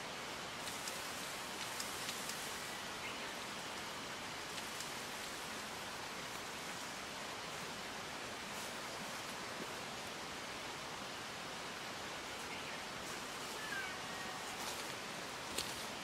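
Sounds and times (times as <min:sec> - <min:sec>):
outdoor background hiss: 0:00.0 - 0:16.0
faint light ticks: 0:00.7 - 0:02.5, 0:04.5 - 0:05.4.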